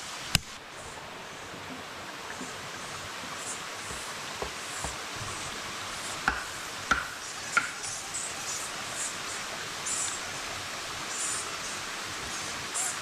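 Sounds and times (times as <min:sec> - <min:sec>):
stream rushing: 0:00.0 - 0:13.0
knife chopping on wood: 0:06.3 - 0:07.7.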